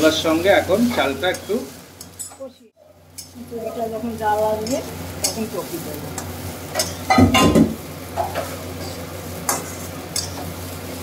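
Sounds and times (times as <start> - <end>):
rice sizzling in oil: 0.0 - 11.0
metal spatula scraping a pan: 8.2 - 10.6.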